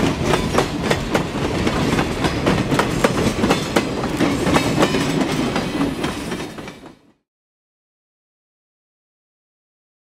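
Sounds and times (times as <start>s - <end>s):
low train rumble: 0.0s - 7.2s
train wheels clicking over rail joints: 0.0s - 7.2s.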